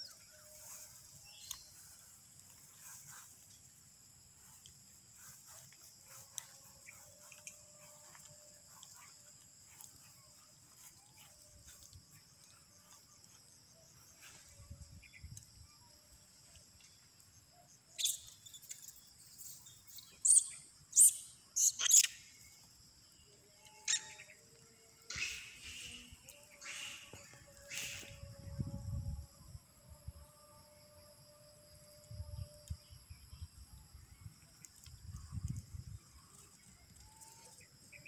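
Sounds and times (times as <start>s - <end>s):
outdoor background hiss: 0.0s - 38.0s
shrill animal calls: 23.8s - 24.4s, 25.1s - 28.2s.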